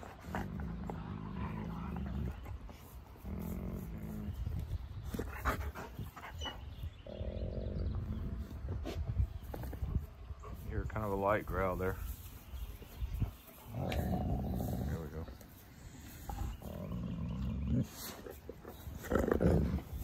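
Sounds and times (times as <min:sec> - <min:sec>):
dog growling low: 0:00.0 - 0:05.7, 0:06.9 - 0:08.7, 0:13.6 - 0:20.0.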